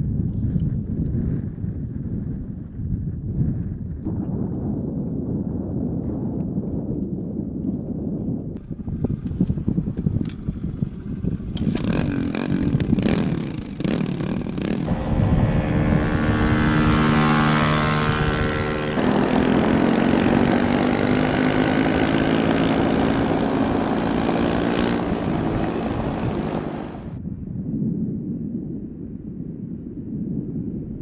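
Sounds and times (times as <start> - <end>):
wind noise: 0.0 - 31.0
dirt bike engine: 8.7 - 27.2.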